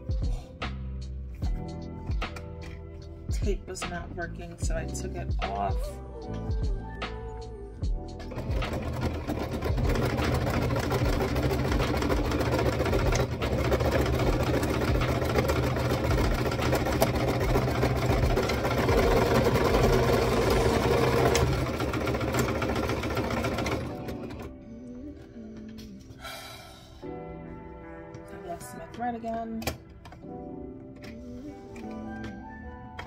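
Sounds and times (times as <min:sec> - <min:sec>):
sewing machine running: 0:08.2 - 0:24.5.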